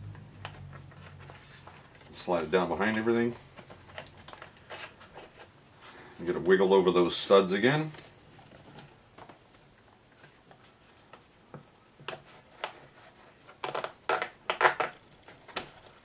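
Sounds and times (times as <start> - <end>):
sharp clicks and rustles: 0.0 - 5.5
plastic parts knocking: 13.6 - 16.0.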